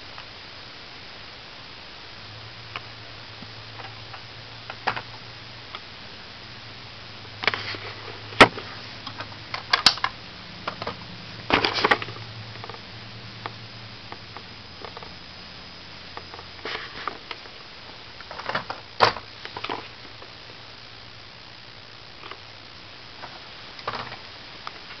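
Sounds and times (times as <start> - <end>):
low steady hum: 0.0 - 25.0.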